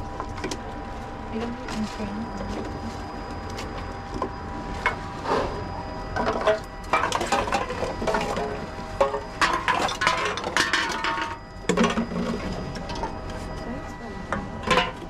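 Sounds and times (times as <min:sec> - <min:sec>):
vending machine humming: 0:00.0 - 0:15.0
plastic bottles and cans clinking: 0:06.2 - 0:13.1, 0:14.6 - 0:15.0.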